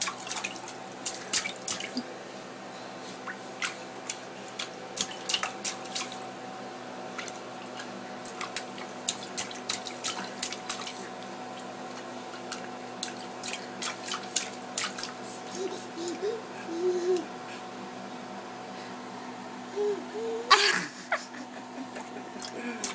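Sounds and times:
baby cooing: 15.5 - 17.3, 19.7 - 20.9.

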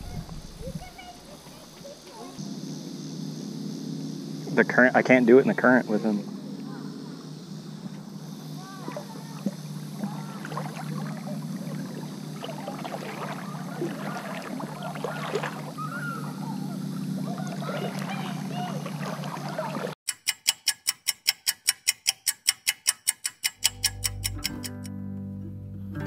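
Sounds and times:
low hum: 0.0 - 20.0
river water gurgling: 7.0 - 20.0
acoustic guitar: 24.1 - 26.0.

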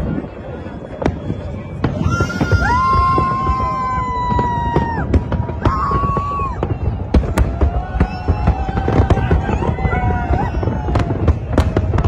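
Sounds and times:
fireworks bursts and crackling: 0.0 - 12.0
high whistling fireworks: 0.0 - 12.0.

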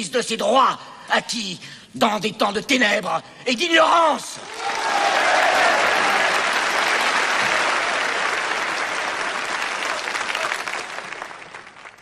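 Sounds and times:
crowd clapping: 4.4 - 12.0.

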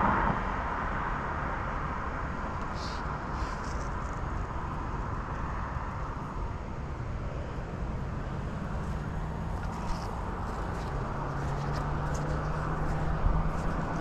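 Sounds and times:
road traffic noise: 0.0 - 14.0
vehicle engine low hum: 0.0 - 14.0.

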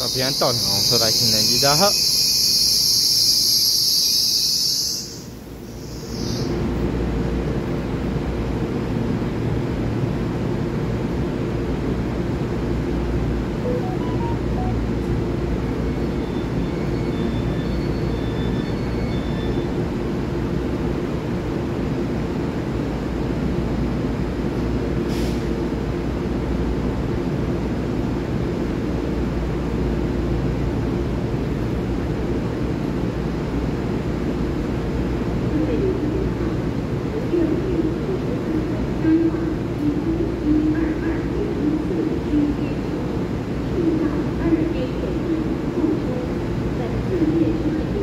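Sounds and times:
electric train hum and rumble: 0.0 - 48.0
short high beeps: 13.6 - 15.2.

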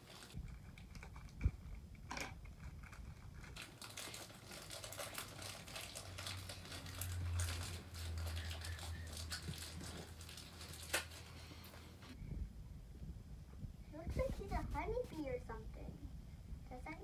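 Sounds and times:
plastic wrapper crinkling: 0.0 - 0.9, 2.9 - 11.9
steady low hum: 6.1 - 17.0.

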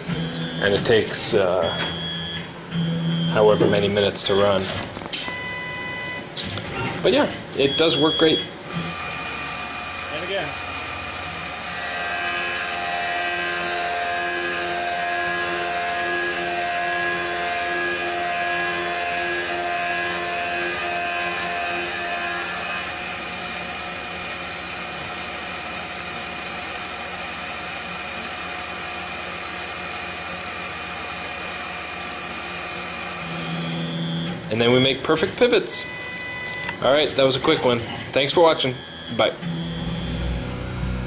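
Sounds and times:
milling machine spindle whining: 8.6 - 34.4
low pulsing cutter tone: 9.1 - 28.9, 38.5 - 41.0.

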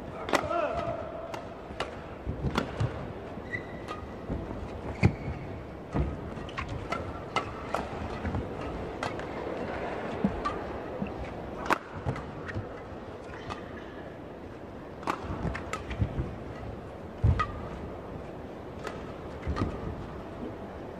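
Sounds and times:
rackets striking shuttlecock: 0.2 - 4.3, 15.0 - 16.0, 16.6 - 17.8.

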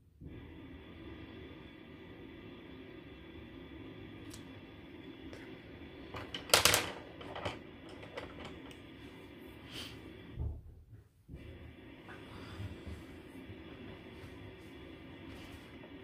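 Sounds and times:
pencils clattering on table: 6.2 - 8.8.

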